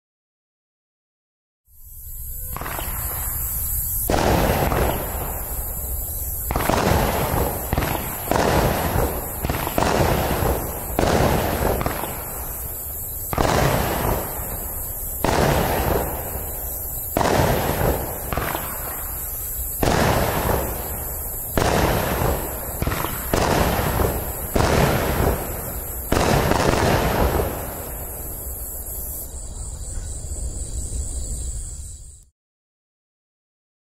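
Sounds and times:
fireworks bangs: 2.2 - 29.3.

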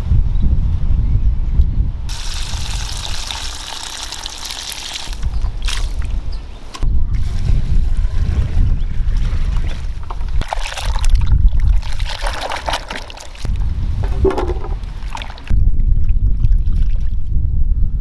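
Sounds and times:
water sloshing and trickling: 2.6 - 6.2, 7.3 - 15.5
low rumble: 13.4 - 18.0.

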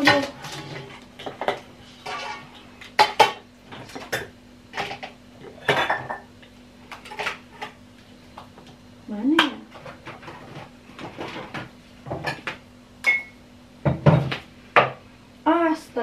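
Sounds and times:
dishes and utensils clattering: 0.0 - 6.3, 6.9 - 7.8.

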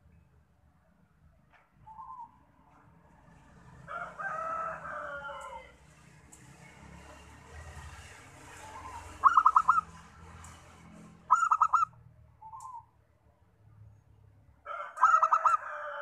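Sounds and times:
rooster crowing: 3.9 - 5.8, 14.6 - 16.0
dove cooing: 8.8 - 9.8.

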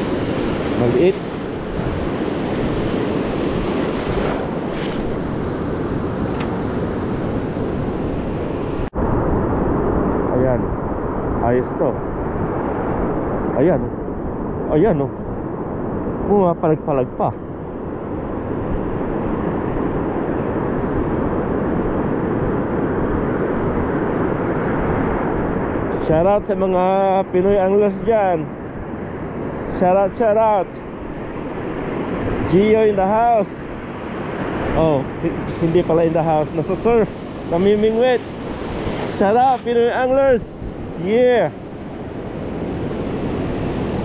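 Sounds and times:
ocean surf breaking: 0.0 - 11.4, 26.7 - 44.0
wind rumbling on microphone: 0.0 - 44.0.

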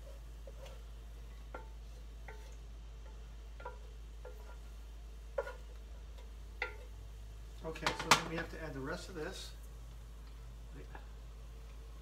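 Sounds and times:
wooden spoon knocking on skillet: 0.4 - 7.0, 7.7 - 8.5.

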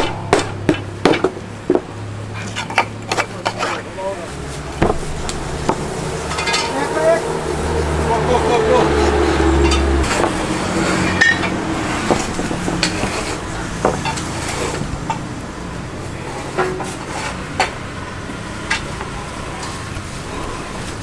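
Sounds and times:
metal utensils and pans clinking: 5.0 - 7.2, 9.4 - 15.2, 16.4 - 17.9, 18.6 - 19.0.

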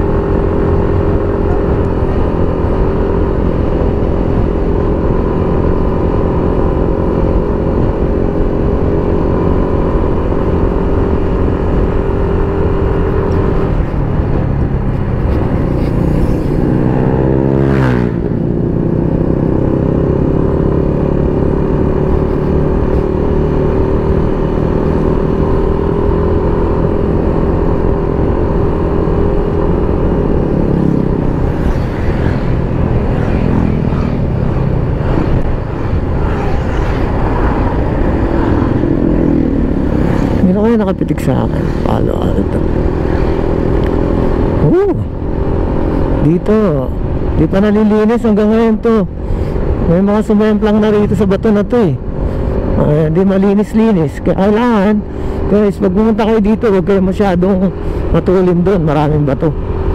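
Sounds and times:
motorcycle engine revving: 0.0 - 59.9
road and wind noise: 0.0 - 59.9.

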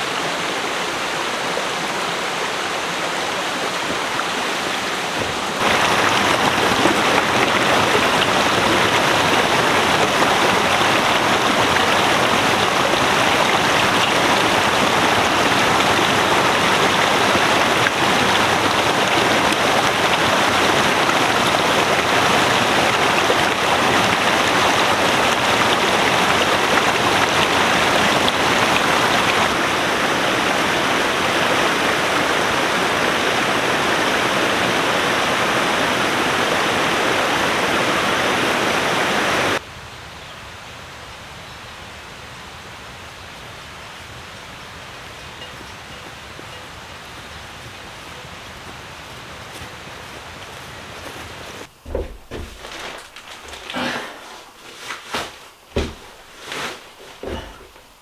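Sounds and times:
stream rushing over rocks: 0.0 - 39.6, 42.3 - 58.0.

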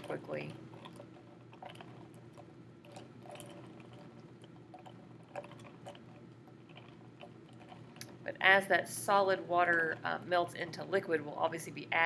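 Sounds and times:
ice clicking in water: 0.0 - 8.2
low room hum: 0.0 - 12.0.

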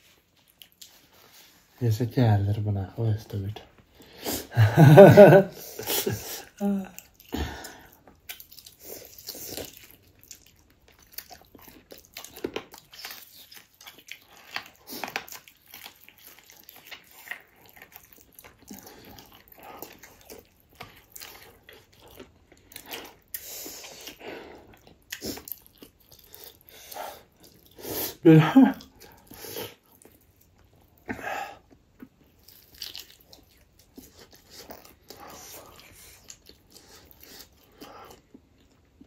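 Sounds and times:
person chewing food: 0.0 - 1.8, 5.2 - 39.0.

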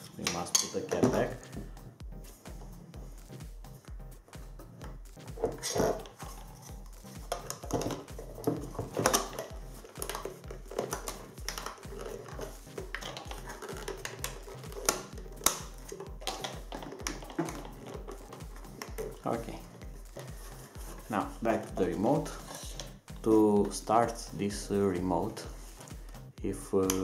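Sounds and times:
background music with steady beat: 0.0 - 27.0
plastic clicks and knocks: 7.1 - 19.2.

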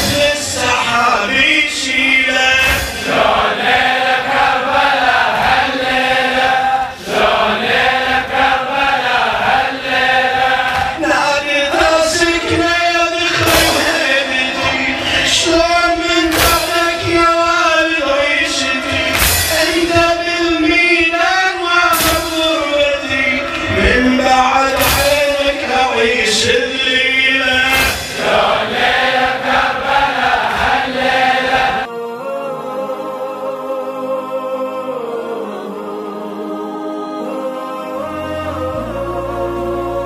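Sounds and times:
sharp beat: 0.0 - 6.4, 7.1 - 31.9
men chanting in chorus: 0.0 - 40.0.

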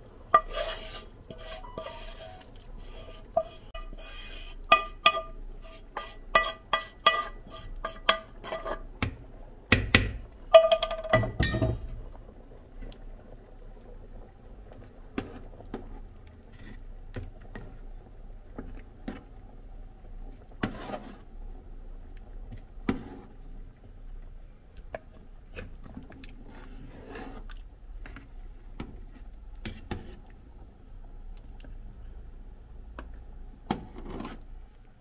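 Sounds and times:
spoon scraping metal pot: 0.3 - 8.9, 33.9 - 34.4.

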